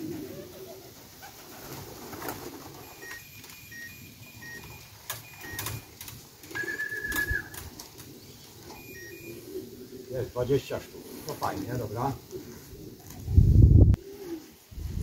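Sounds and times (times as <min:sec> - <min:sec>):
pigeons cooing: 0:00.0 - 0:15.0
high steady beep: 0:02.9 - 0:05.9, 0:08.8 - 0:09.4
sharp clicks: 0:04.5 - 0:08.2.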